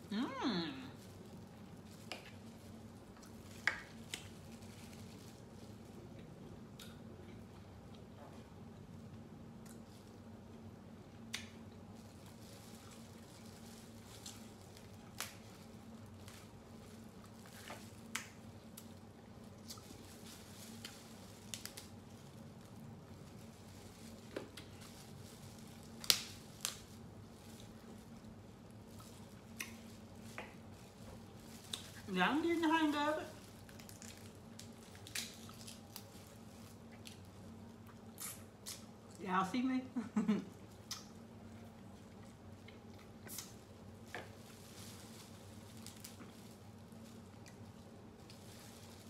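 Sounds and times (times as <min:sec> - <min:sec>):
low steady hum: 0:00.0 - 0:49.0
crab shells cracking: 0:33.6 - 0:36.1.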